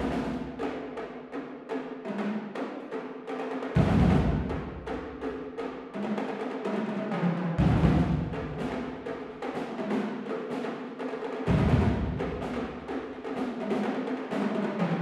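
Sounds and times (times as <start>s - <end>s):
snare and tenor drum cadence: 0.0s - 1.0s, 3.8s - 5.0s, 6.0s - 10.8s, 11.4s - 15.0s.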